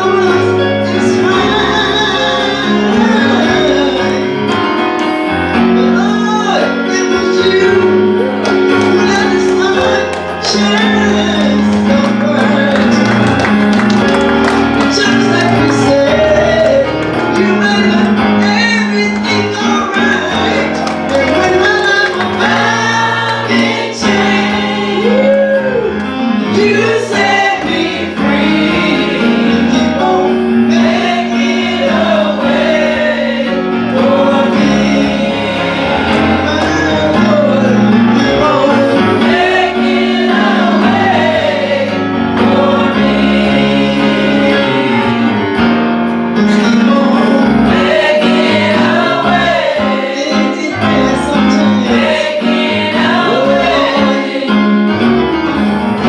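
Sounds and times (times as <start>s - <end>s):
choir singing gospel: 0.0s - 56.0s
keyboard chords: 0.0s - 56.0s.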